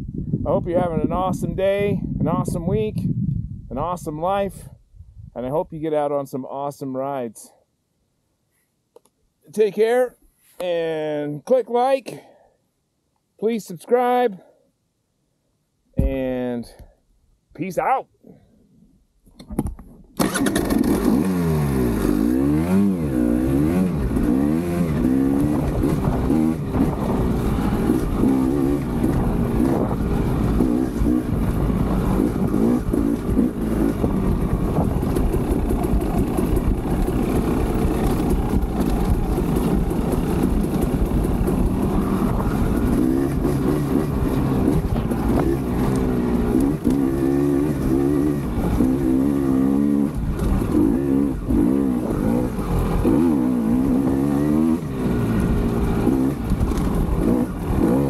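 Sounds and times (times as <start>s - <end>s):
two-stroke engine revving: 20.2s - 58.0s.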